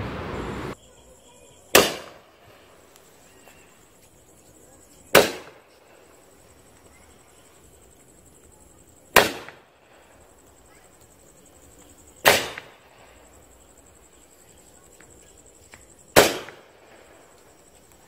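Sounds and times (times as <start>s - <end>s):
firework bangs: 1.6s - 2.8s, 5.0s - 6.3s, 9.0s - 10.8s, 12.2s - 13.4s, 16.1s - 17.5s.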